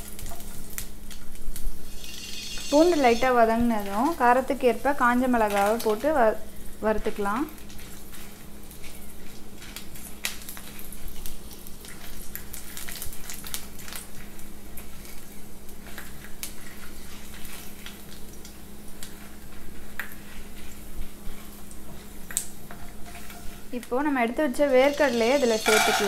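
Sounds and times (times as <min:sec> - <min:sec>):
garlic and chillies sizzling in oil: 0:00.0 - 0:26.0
wooden spatula stirring in pan: 0:01.9 - 0:06.1, 0:07.2 - 0:12.3, 0:19.0 - 0:26.0.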